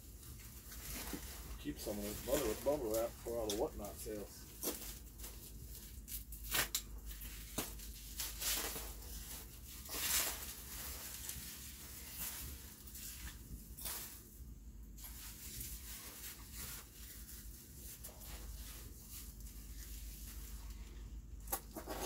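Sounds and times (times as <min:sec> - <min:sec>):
bubble wrap crinkling: 0:00.0 - 0:22.0.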